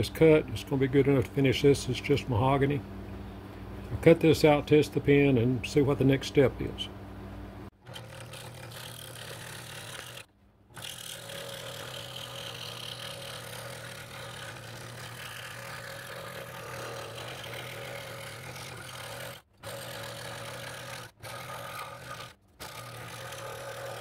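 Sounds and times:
scroll saw cutting wood: 7.8s - 24.0s.

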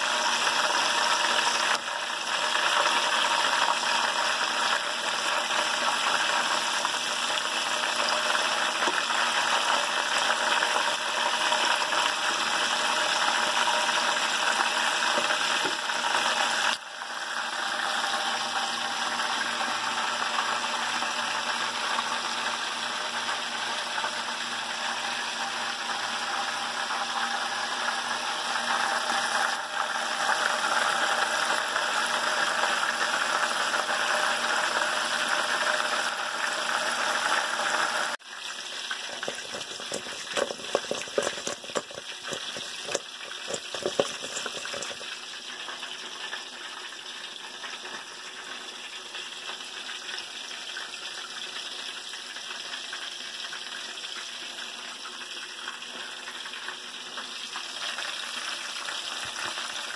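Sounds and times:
hot oil sizzling: 0.0s - 59.9s
food clattering in a steel bowl: 39.0s - 45.1s.

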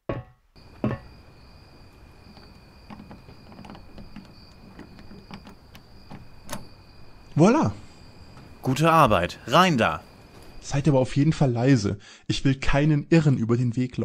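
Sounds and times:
knock: 0.1s - 1.1s
crickets chirping: 0.6s - 11.7s
lock clicking and rattling: 2.2s - 7.4s.

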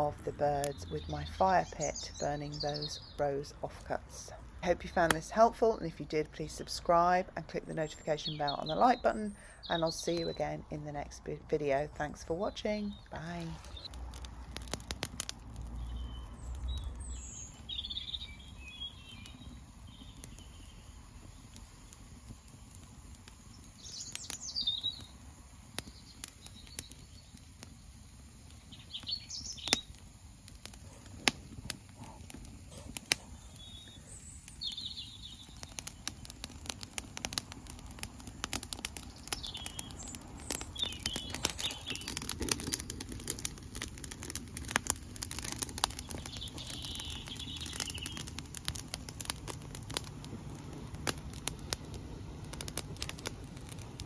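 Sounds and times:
songbirds chirping: 0.0s - 50.0s
fire crackling and popping: 0.0s - 54.0s.

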